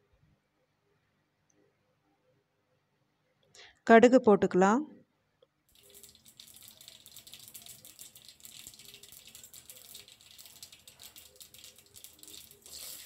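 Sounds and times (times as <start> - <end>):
seeds sizzling in hot oil: 5.7 - 13.0.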